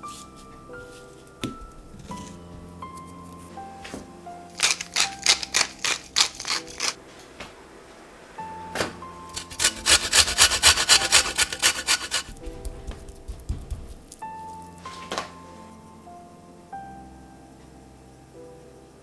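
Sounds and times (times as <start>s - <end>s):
soft piano music: 0.0s - 19.0s
pepper mill grinding: 4.5s - 7.0s, 9.3s - 12.4s
lemon scraped on metal grater: 4.6s - 7.0s, 9.3s - 12.4s.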